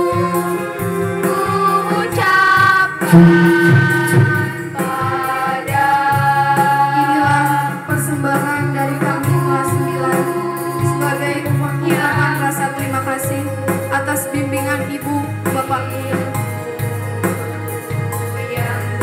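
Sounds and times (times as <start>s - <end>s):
choir singing: 1.2s - 7.7s
bass notes: 3.0s - 5.5s
light percussion beat: 3.0s - 6.2s.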